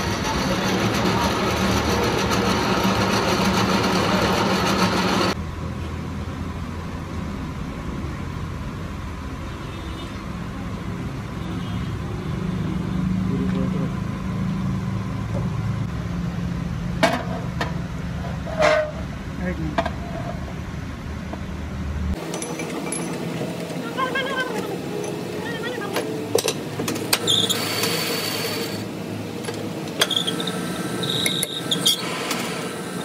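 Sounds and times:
lathe humming: 0.0 - 5.4
rough machine noise: 0.0 - 5.4, 22.2 - 33.0.

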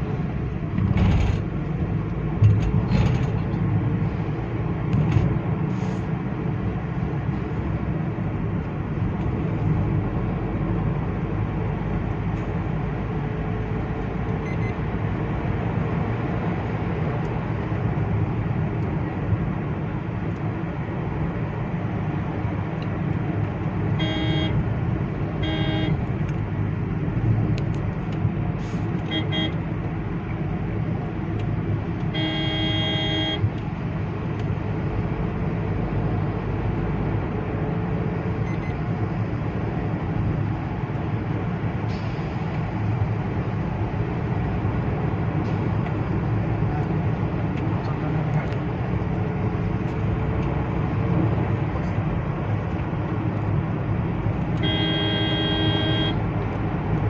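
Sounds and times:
car engine and tyre rumble: 0.0 - 57.0
vehicle horn blasts: 24.0 - 24.6, 25.4 - 26.0, 29.1 - 29.6, 32.1 - 33.5, 54.6 - 56.2.

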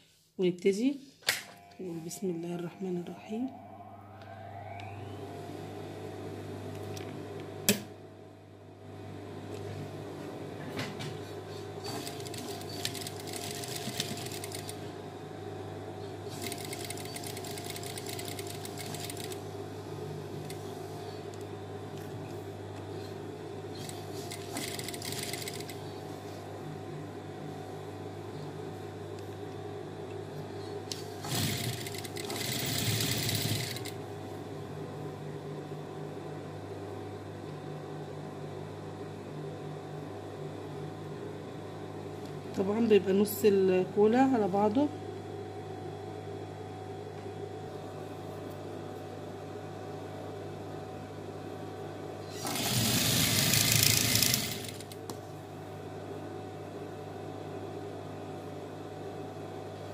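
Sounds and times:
steady low hum: 0.2 - 52.4
sewing machine stitching: 11.9 - 14.8, 16.3 - 19.4, 23.8 - 25.8, 31.2 - 34.0, 52.4 - 55.0.

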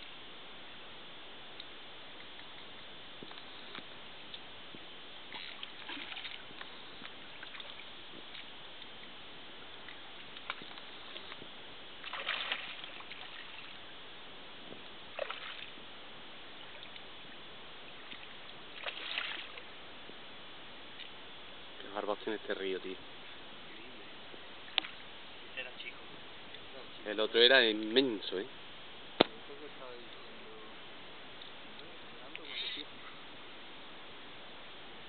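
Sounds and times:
background hiss: 0.0 - 35.0
fish thrashing and splashing: 5.3 - 6.7, 12.0 - 13.8, 15.2 - 15.8, 18.0 - 19.7.

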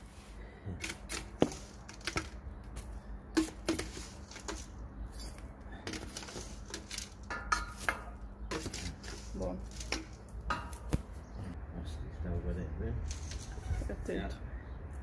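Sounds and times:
wood ash rattling: 0.8 - 11.4.

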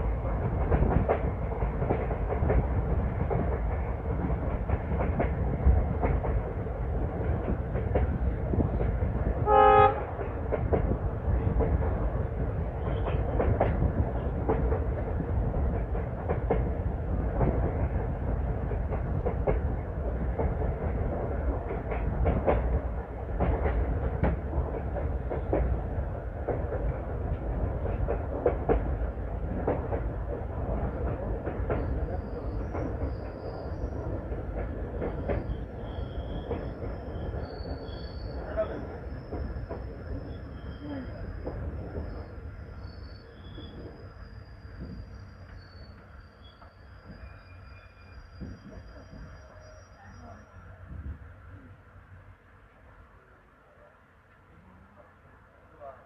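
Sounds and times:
train rumbling on track: 0.0 - 56.0
train horn blast: 9.4 - 10.2
wheels clacking over rail joints: 10.0 - 42.2.

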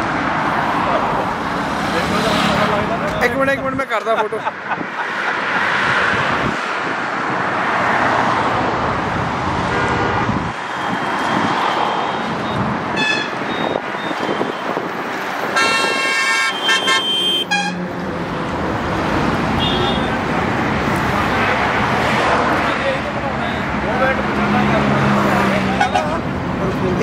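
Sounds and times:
road traffic noise: 0.0 - 27.0
vehicle horns honking: 9.7 - 10.3, 12.0 - 14.8, 15.5 - 17.9, 19.5 - 20.2, 25.7 - 26.2.

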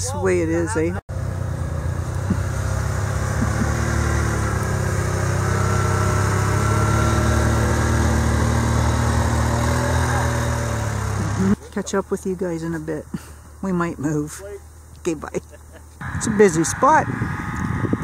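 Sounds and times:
small engine idling: 1.1 - 11.9.

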